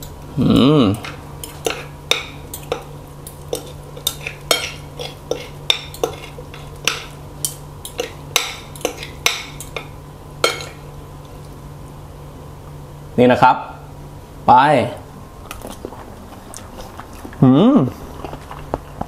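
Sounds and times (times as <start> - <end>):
cutlery clinking on a plate: 1.0 - 10.8.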